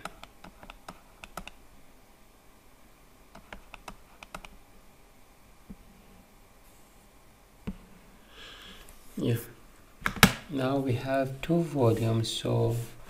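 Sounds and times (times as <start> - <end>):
computer keys clicking: 0.0 - 1.6, 3.3 - 4.6
faint room noise: 0.0 - 13.0.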